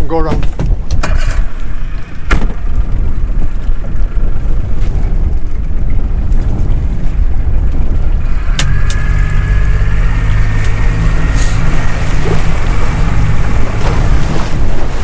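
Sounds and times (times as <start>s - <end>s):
outboard motor running: 0.1s - 15.0s.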